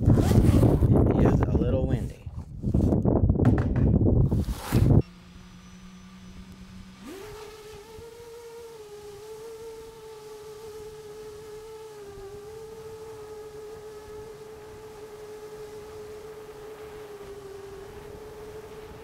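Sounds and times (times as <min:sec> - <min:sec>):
drone motors whining: 0:04.2 - 0:19.0.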